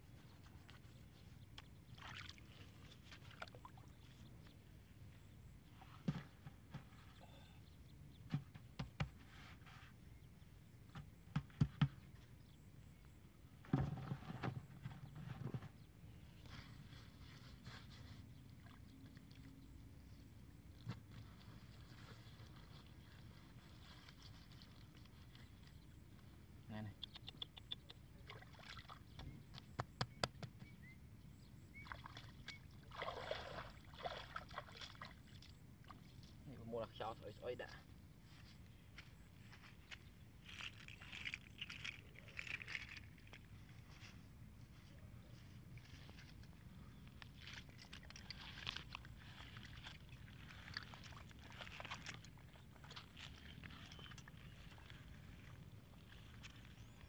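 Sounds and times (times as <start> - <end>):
hands slapping wet mud: 28.3 - 30.8
water splashing: 31.8 - 36.0, 47.4 - 53.5.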